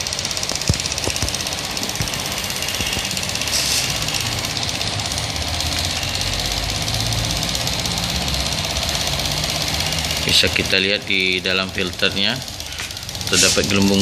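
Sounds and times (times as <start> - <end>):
small pump running rhythmically: 0.0 - 14.0
brief hiss: 3.5 - 4.0.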